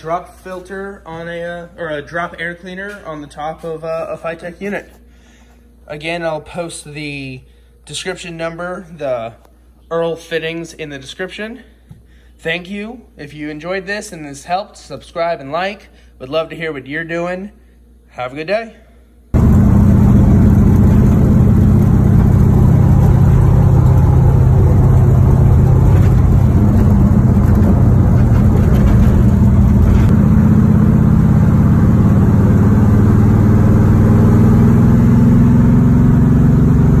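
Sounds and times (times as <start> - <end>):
car engine drone: 19.4 - 37.0.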